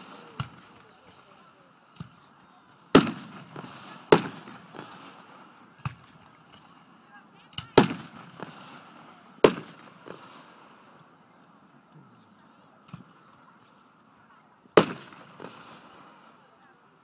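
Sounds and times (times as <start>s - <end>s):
firework shells booming: 0.0s - 1.3s, 2.9s - 6.8s, 7.5s - 10.6s, 14.7s - 16.2s
light firework pops: 0.0s - 6.8s, 7.4s - 10.7s, 12.8s - 13.7s, 14.7s - 16.2s.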